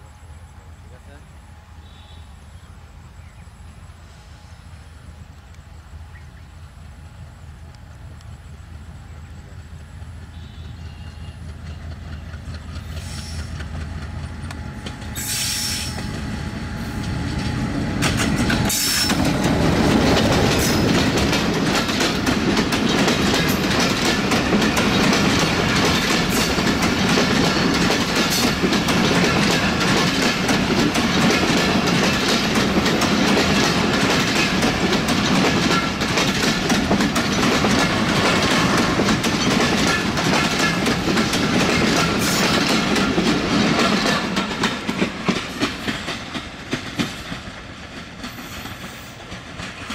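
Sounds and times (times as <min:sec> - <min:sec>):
diesel locomotive passing: 0:00.0 - 0:49.9
train wheels clattering on track: 0:07.7 - 0:49.9.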